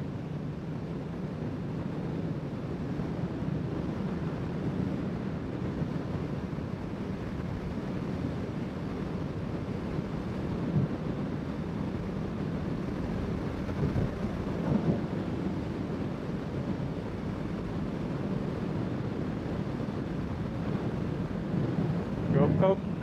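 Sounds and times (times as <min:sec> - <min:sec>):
wind rushing over microphone: 0:00.0 - 0:23.0.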